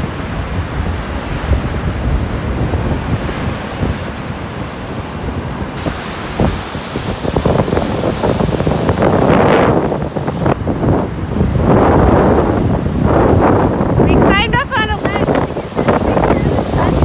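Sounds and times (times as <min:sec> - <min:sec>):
surf breaking on rocky shore: 0:00.0 - 0:17.0
wind buffeting microphone: 0:00.0 - 0:17.0.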